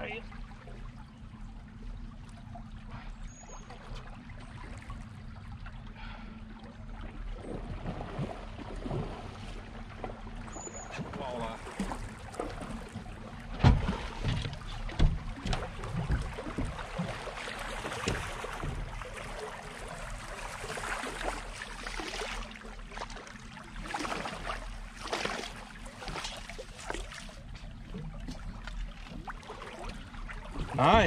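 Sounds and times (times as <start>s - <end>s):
water lapping against boat hull: 0.0s - 31.0s
knocks and thumps on boat: 7.1s - 23.3s, 23.9s - 31.0s.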